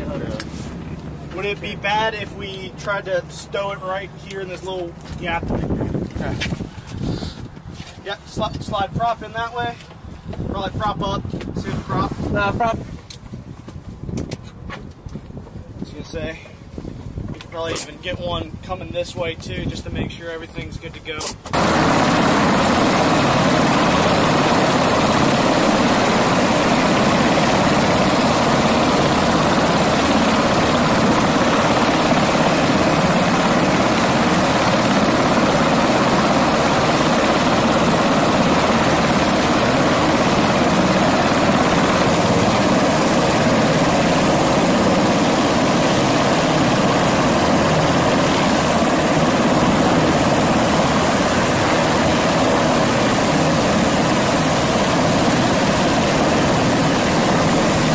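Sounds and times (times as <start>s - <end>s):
helicopter rotor noise: 0.0s - 13.1s, 17.3s - 57.9s
helicopter engine whine: 21.5s - 57.9s.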